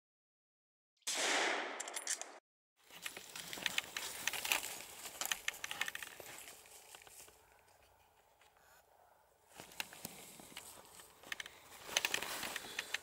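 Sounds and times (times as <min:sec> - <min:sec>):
dry leaves crackling underfoot: 0:02.8 - 0:07.8, 0:09.5 - 0:12.9.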